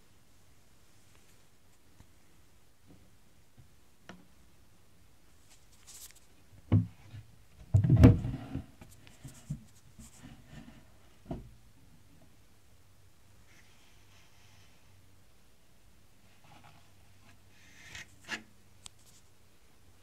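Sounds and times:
rubbing on phone: 0:05.4 - 0:06.3, 0:08.9 - 0:10.6.

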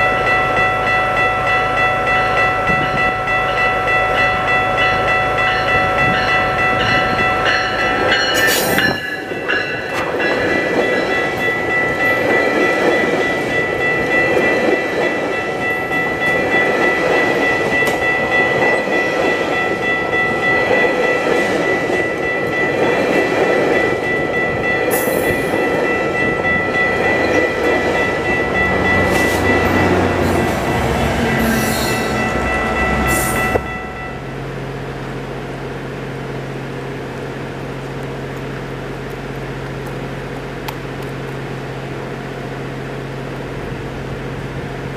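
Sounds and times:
crossing warning bell ringing: 0:00.0 - 0:35.8
train wheels rumbling on rails: 0:00.0 - 0:44.9.

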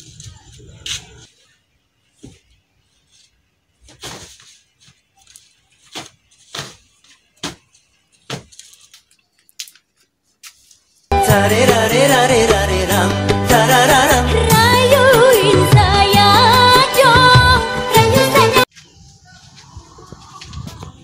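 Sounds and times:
bedsheets rustling and flapping: 0:02.2 - 0:09.0.

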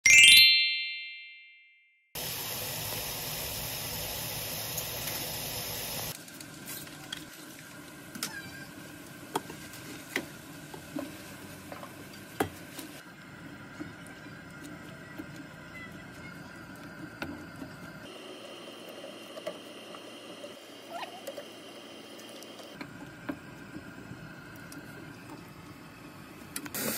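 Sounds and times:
bright chime: 0:00.0 - 0:01.8
pan of water hissing: 0:02.2 - 0:06.2.

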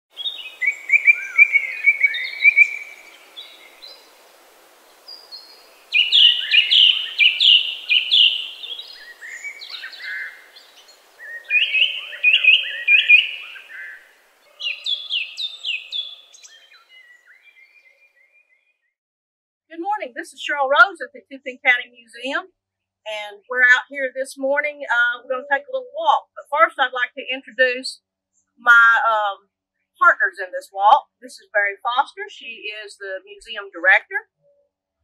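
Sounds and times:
songbirds chirping: 0:00.2 - 0:18.9.

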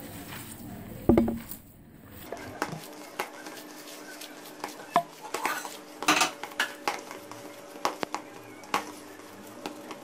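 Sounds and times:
hands mixing mince in plastic bowl: 0:02.2 - 0:10.0.

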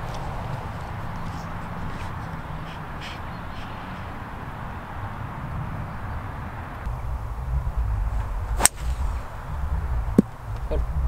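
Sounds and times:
faint bird calls: 0:00.8 - 0:05.0
low rumble: 0:06.8 - 0:11.0.

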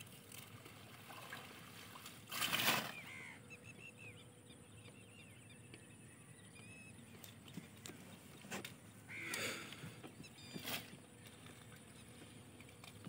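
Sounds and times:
water splashing with plants rustling: 0:00.0 - 0:03.4, 0:07.2 - 0:13.0
small birds twittering: 0:02.9 - 0:12.4.

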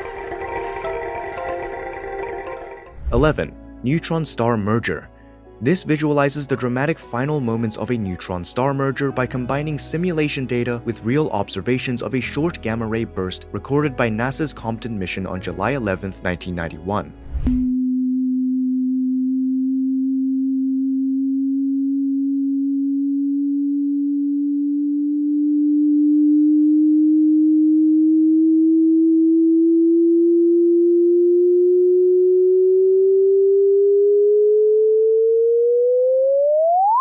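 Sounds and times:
pure tone rising in pitch: 0:00.0 - 0:03.4, 0:17.3 - 0:37.0.

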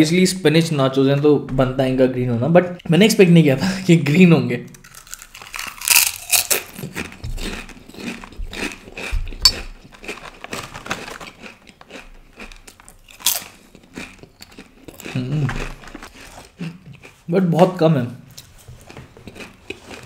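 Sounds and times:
chip crunching while chewing: 0:04.7 - 0:17.2, 0:19.3 - 0:20.0.

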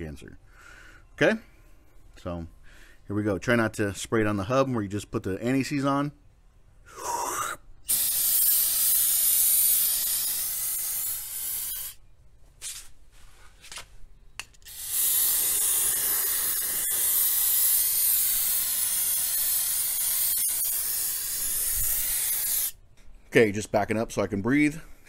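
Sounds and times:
aerosol can spraying: 0:07.9 - 0:12.0, 0:14.6 - 0:22.8.

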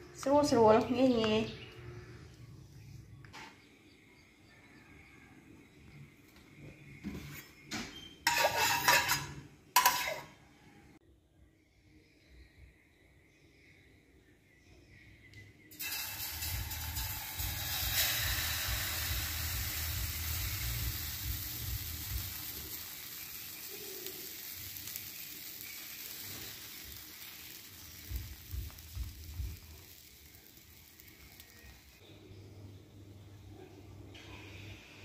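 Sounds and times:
batter sizzling in hot oil: 0:08.3 - 0:10.2, 0:15.7 - 0:32.0.

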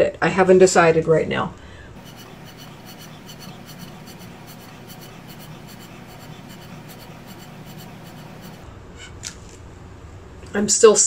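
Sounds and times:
paint crackling: 0:02.0 - 0:08.7.

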